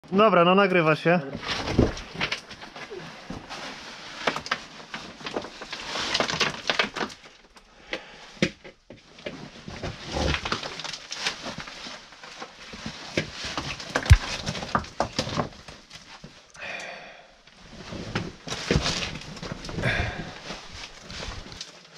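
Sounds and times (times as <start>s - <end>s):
effortful breathing: 7.6s - 8.4s, 16.6s - 17.5s, 19.8s - 21.4s
loose rubble shifting: 8.3s - 16.4s, 17.6s - 21.9s
clothing scraping against rock: 9.5s - 16.3s, 17.6s - 21.9s
knees and boots knocking stone: 14.0s - 15.0s.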